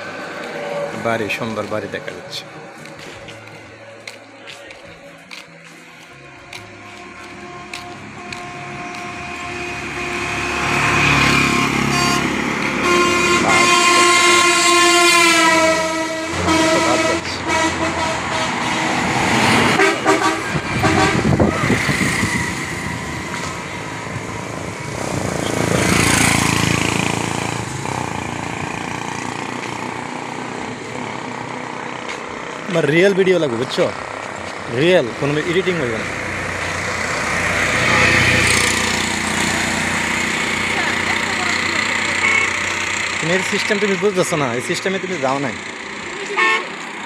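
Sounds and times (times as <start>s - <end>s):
road traffic passing: 0.0s - 47.0s
vehicle horn: 6.2s - 23.8s, 41.4s - 42.8s, 46.3s - 46.8s.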